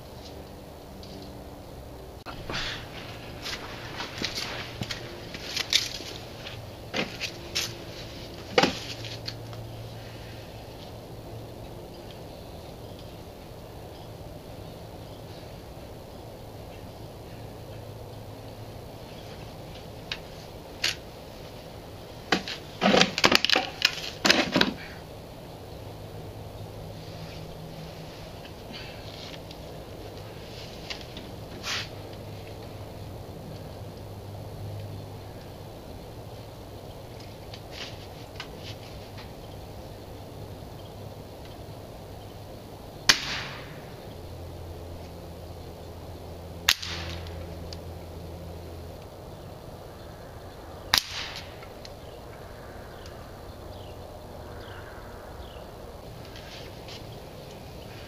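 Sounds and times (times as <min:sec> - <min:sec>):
air rifle shot: 0:43.1 - 0:43.9, 0:46.7 - 0:47.3, 0:50.9 - 0:51.6.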